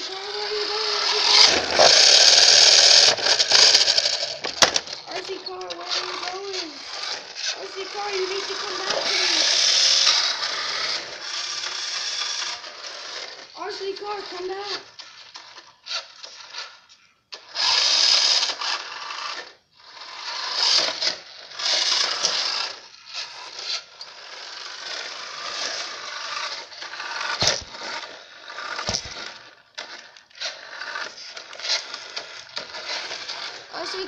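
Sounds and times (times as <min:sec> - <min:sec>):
toy car motor whirring: 0:00.0 - 0:34.0.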